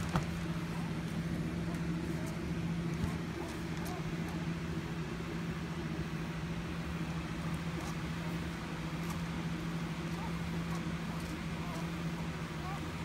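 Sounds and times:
constant hiss: 0:00.0 - 0:13.0
low machine hum: 0:00.0 - 0:13.0.

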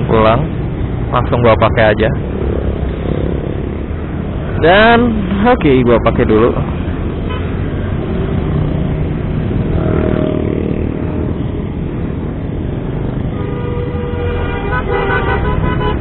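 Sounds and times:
rumble of passing traffic: 0:00.0 - 0:16.0
vehicle horn honking: 0:07.2 - 0:07.6, 0:13.3 - 0:16.0.

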